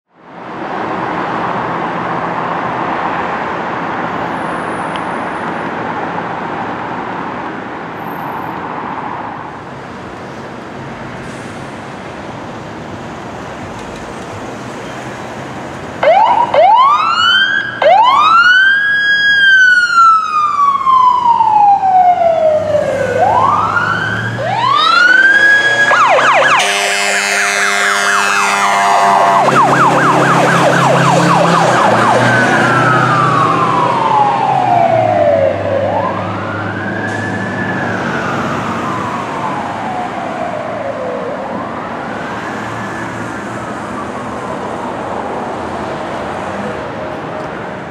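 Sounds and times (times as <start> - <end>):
fire engine siren wailing: 11.9 - 47.4
siren rapid warbling: 16.0 - 44.7
air horn blasts: 25.5 - 29.9.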